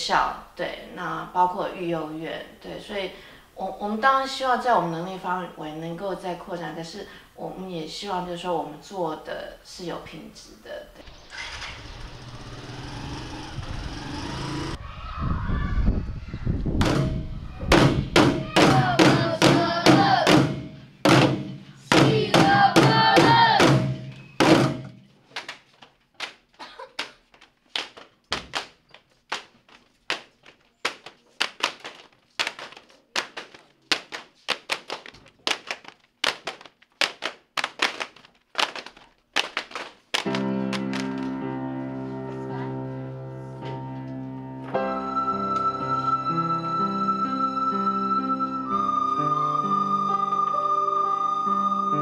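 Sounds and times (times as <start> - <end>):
buckets and tins struck as drums: 16.8 - 25.0
voices singing or chanting: 18.4 - 20.5, 21.9 - 23.8.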